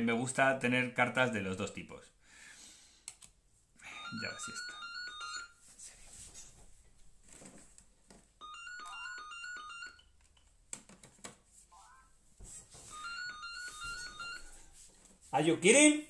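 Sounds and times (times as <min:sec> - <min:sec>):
phone ringtone melody: 0:03.8 - 0:05.6, 0:08.4 - 0:10.1, 0:11.7 - 0:12.2, 0:12.8 - 0:14.7.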